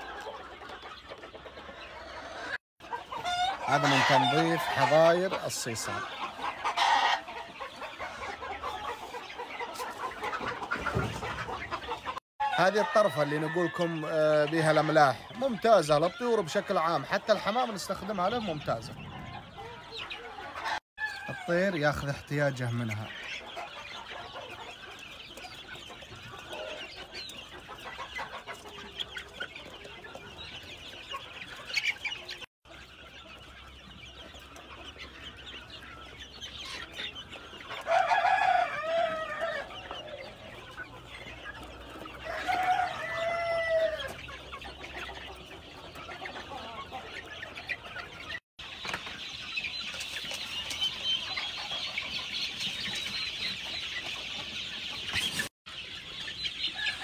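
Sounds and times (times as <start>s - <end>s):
chicken long calls: 0.0s - 21.8s, 34.4s - 48.2s
chickens clucking and cheeping: 0.0s - 57.0s.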